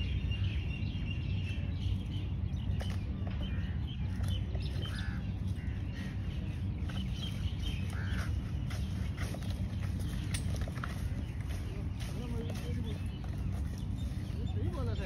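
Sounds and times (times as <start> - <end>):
bird calls: 0.0 - 15.0
birds chirping: 0.0 - 15.0.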